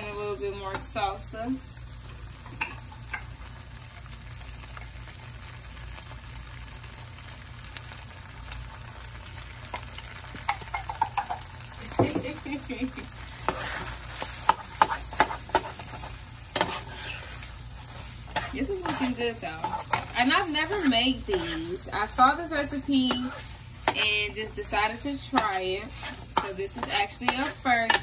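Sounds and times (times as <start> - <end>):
meat sizzling in a skillet: 0.0 - 28.0
metal spoon scraping a pan: 13.3 - 28.0.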